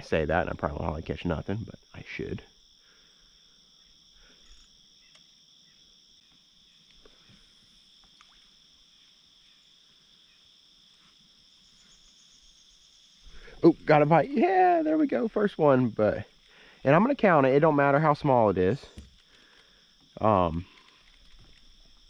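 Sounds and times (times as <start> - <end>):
high-pitched insect chorus: 0.0 - 22.0
faint ticks: 4.3 - 5.4, 6.2 - 7.4, 8.0 - 8.5, 18.9 - 22.0.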